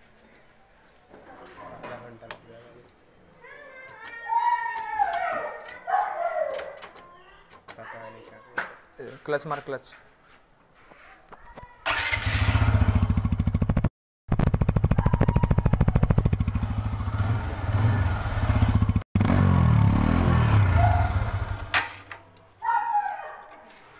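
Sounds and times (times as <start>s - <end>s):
motorcycle engine running: 11.9s - 21.7s.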